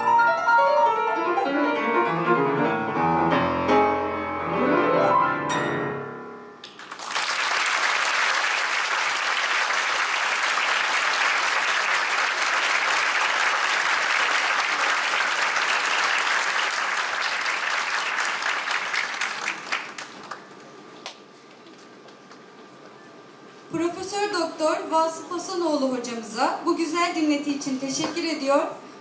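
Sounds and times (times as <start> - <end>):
piano notes ringing: 0.0 - 6.6
audience applauding: 6.6 - 20.6.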